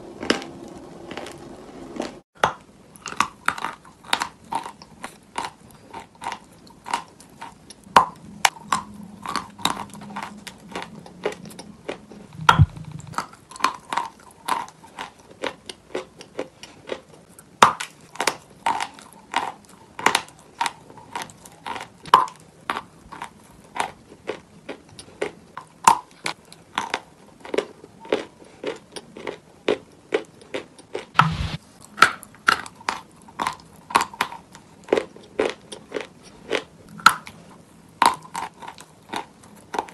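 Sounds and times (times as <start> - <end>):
chewing and crunching chalk: 0.2 - 1.4, 2.0 - 2.2, 3.0 - 31.1, 31.8 - 39.9
low thumps: 12.4 - 13.2.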